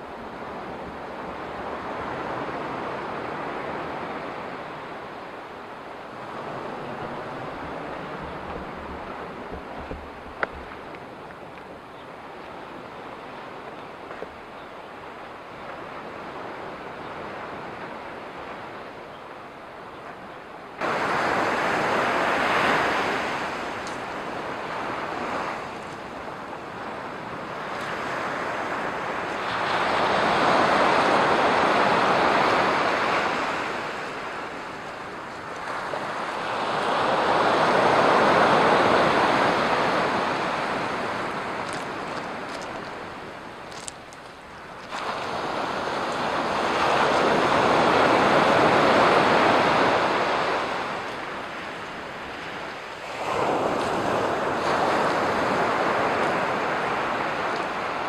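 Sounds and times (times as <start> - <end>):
surf breaking on beach: 20.8 - 58.0.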